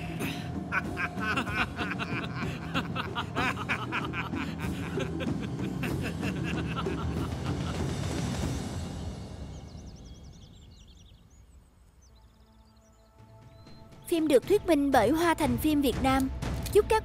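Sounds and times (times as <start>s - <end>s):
men laughing: 0.0s - 8.2s
soft background music: 0.0s - 17.0s.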